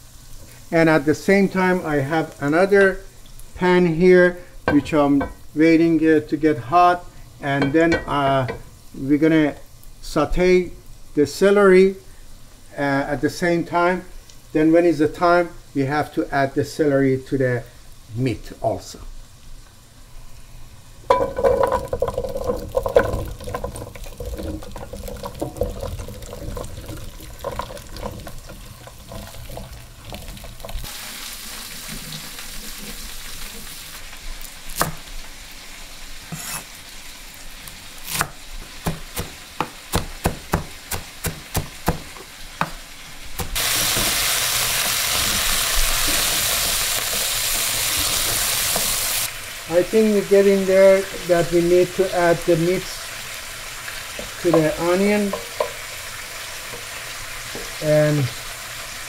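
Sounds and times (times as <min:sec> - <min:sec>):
onion sizzling in oil: 0:00.0 - 0:59.0
spoon scraping and knocking pot: 0:21.1 - 0:30.8, 0:54.2 - 0:55.8.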